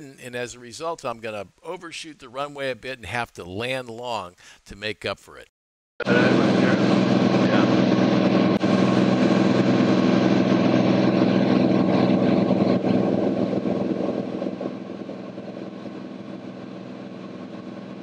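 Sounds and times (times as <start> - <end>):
aircraft engine and propeller droning: 6.0 - 18.0.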